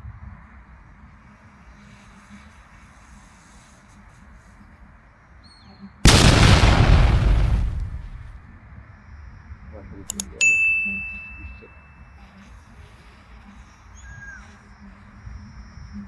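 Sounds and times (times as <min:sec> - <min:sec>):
faint outdoor background noise: 0:00.0 - 0:16.0
quick clicks: 0:10.0 - 0:10.4
bright bell-like ding: 0:10.4 - 0:12.0.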